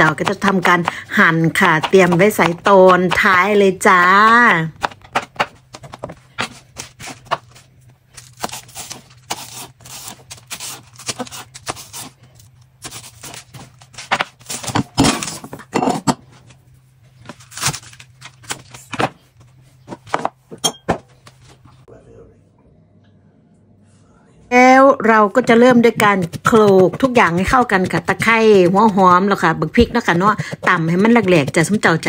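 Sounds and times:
knife chopping on plastic board: 0.0 - 7.5, 25.7 - 31.9.

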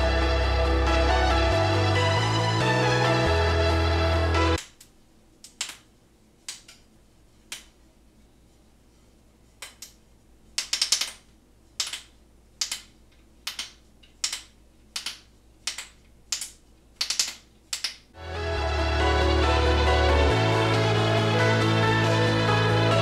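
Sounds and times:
background music: 0.0 - 4.6, 18.2 - 23.0.

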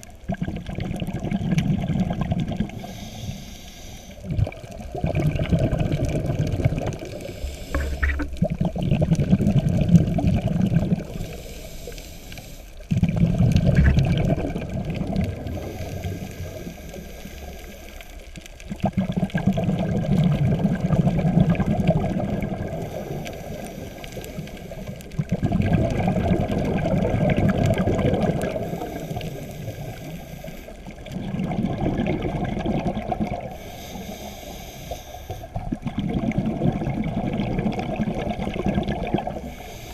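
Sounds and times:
exhaled bubbles rumbling underwater: 0.0 - 39.9
regulator inhalation hiss: 2.8 - 4.2, 7.1 - 8.3, 11.1 - 12.8, 15.5 - 18.2, 22.8 - 25.0, 28.6 - 30.9, 33.5 - 35.6, 39.4 - 39.9.

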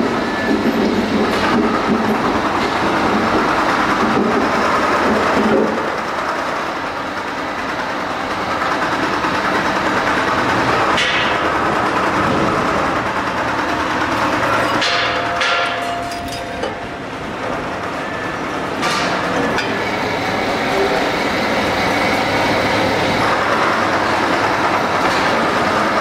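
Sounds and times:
machinery running: 0.0 - 26.0
sharp metallic knocks: 10.9 - 11.5, 14.3 - 17.0.

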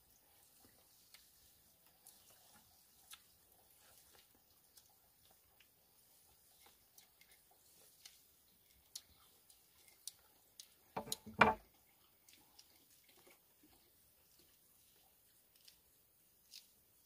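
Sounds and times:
machete knocking on wooden table: 11.0 - 11.6.

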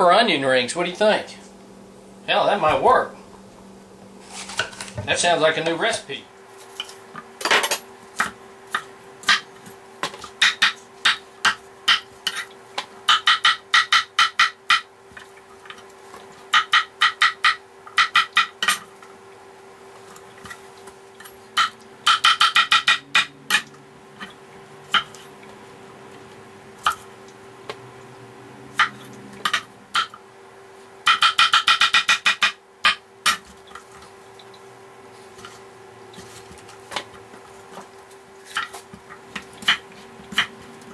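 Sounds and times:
steady hum: 0.0 - 40.9
knife chopping on wooden board: 21.6 - 24.3.

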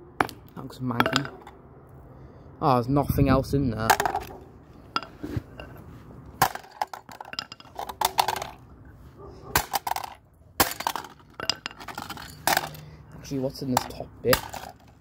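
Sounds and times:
plastic pieces clattering on concrete: 3.8 - 4.4, 6.4 - 8.6, 9.6 - 12.9, 13.7 - 15.0.

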